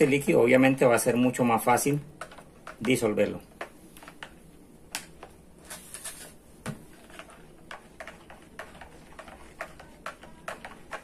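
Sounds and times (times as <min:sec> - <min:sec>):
spoon scraping plastic jug: 0:05.6 - 0:11.0.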